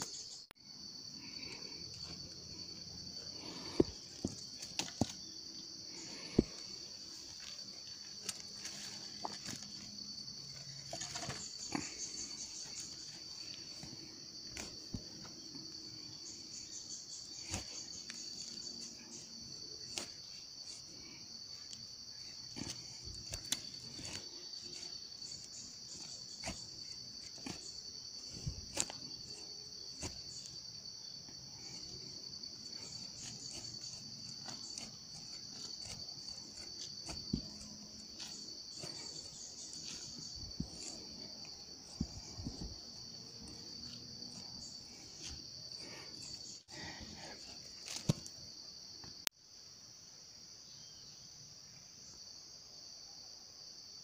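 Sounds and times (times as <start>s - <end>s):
high-pitched insect chorus: 0.0s - 54.0s
machete striking soil: 22.4s - 30.6s, 32.7s - 44.6s.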